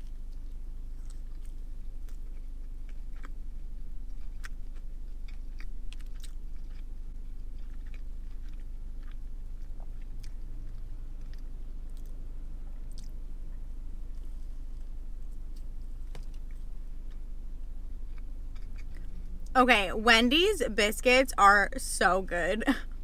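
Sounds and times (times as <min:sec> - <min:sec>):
person chewing: 0:00.0 - 0:13.3, 0:14.0 - 0:19.5
steady low hum: 0:00.0 - 0:23.0.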